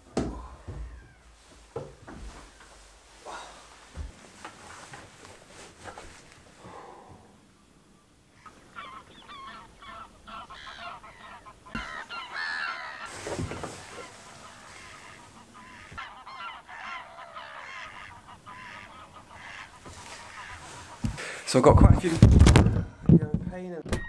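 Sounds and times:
geese honking: 8.3s - 21.4s.

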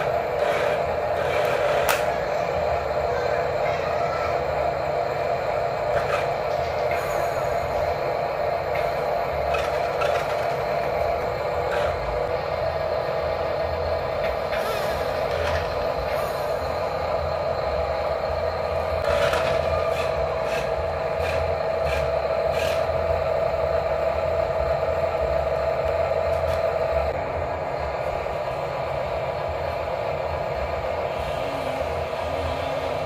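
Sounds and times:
toy truck motor whine: 0.0s - 23.5s
sharp clicks and scrapes: 0.4s - 2.2s.

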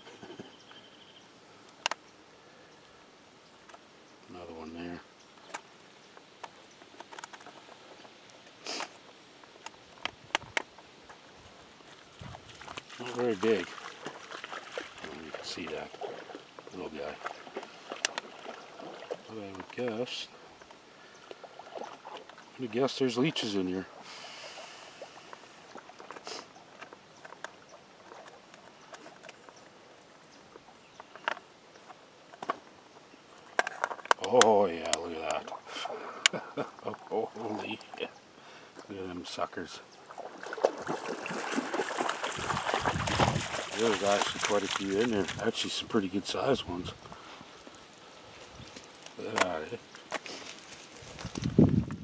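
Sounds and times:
soft hiss: 0.0s - 15.9s, 19.2s - 27.2s, 41.3s - 51.7s
thin metal clicking and crinkling: 33.5s - 35.4s
short rustle: 50.0s - 51.7s.

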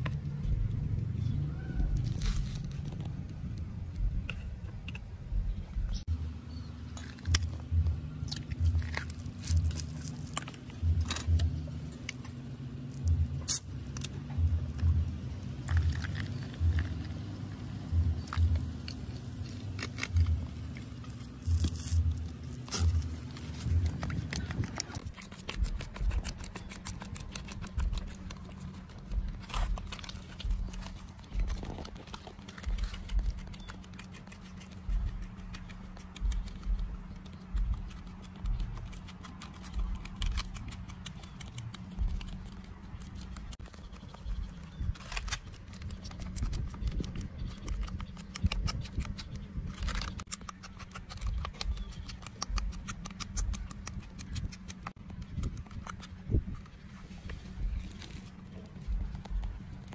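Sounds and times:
background music with low beat: 0.0s - 34.0s, 34.8s - 43.6s, 58.6s - 59.9s.

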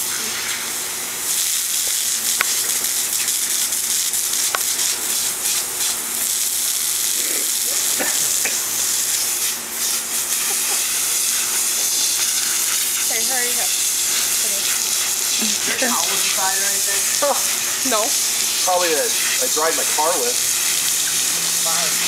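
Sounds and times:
water spraying from garden hose: 0.0s - 22.0s.

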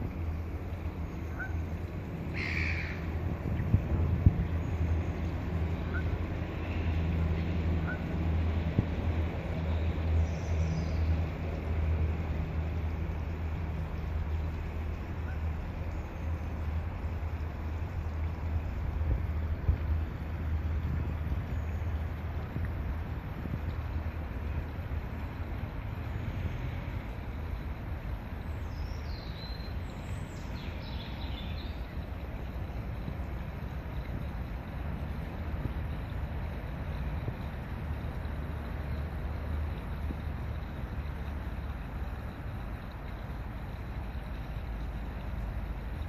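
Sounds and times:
low mechanical hum and rumble: 0.0s - 46.0s
wind buffeting microphone: 3.0s - 5.6s, 18.7s - 24.8s
songbird singing: 9.6s - 11.5s, 28.2s - 32.3s.

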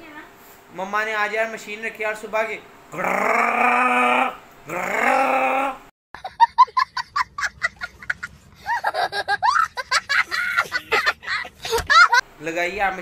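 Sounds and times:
long held vocal sounds: 2.9s - 5.9s
child laughing: 6.2s - 12.2s.

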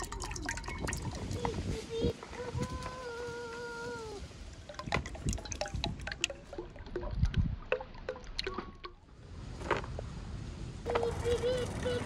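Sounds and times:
oil pouring into pot: 0.0s - 1.3s, 4.6s - 8.6s.

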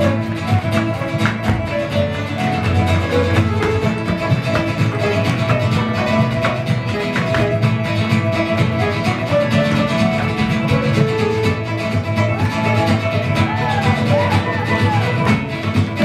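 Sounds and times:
folk band with guitar: 0.0s - 16.0s
feet and brooms tapping on stage: 0.3s - 9.2s.

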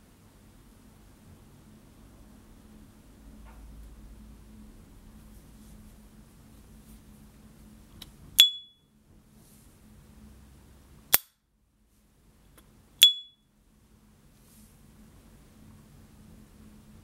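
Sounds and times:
high ringing ping: 8.4s - 8.9s, 13.0s - 13.5s.

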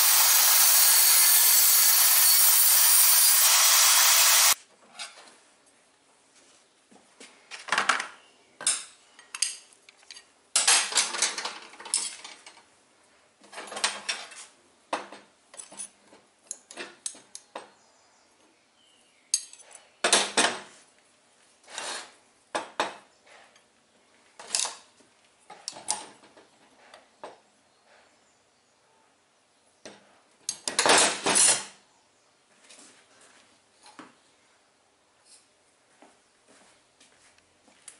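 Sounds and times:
pliers and steel rods clinking: 8.6s - 12.6s, 15.5s - 17.5s, 19.3s - 19.9s.

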